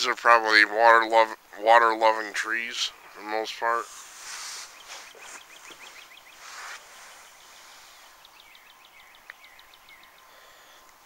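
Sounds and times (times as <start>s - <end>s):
songbird trills: 2.5s - 11.0s
rustling noise: 3.6s - 8.2s.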